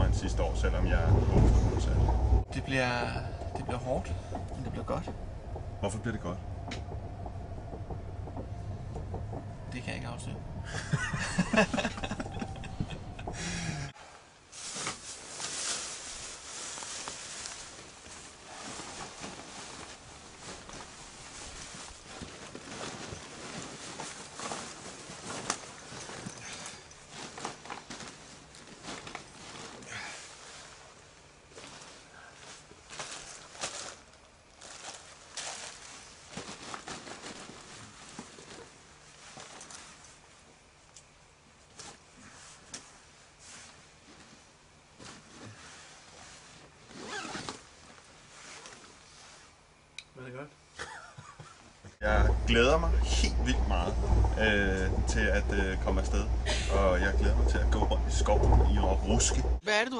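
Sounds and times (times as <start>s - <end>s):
train carriage rumble: 0.0s - 40.8s, 51.9s - 59.6s
open-air ambience: 0.0s - 59.9s
man laughing: 10.7s - 13.9s, 50.8s - 51.7s, 56.5s - 56.8s
camping gear rustling: 10.7s - 49.9s.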